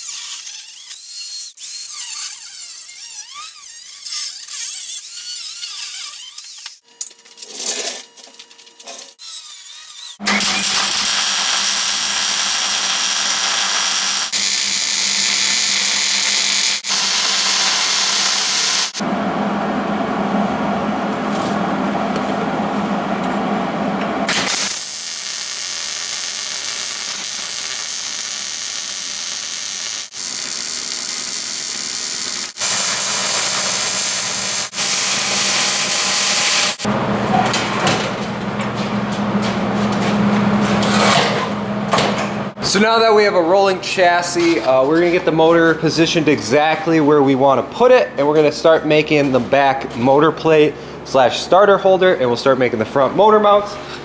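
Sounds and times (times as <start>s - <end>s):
welder crackling hiss: 10.6s - 19.0s, 24.3s - 36.9s.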